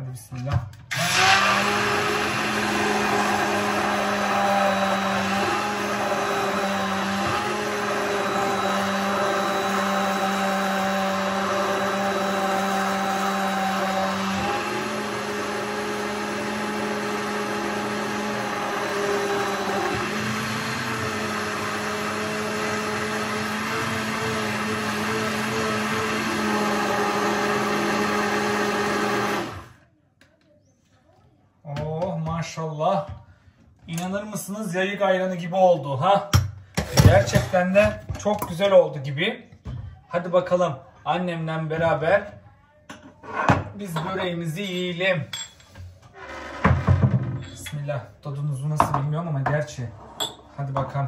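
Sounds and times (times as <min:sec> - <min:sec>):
electric blender running: 0:00.9 - 0:29.8.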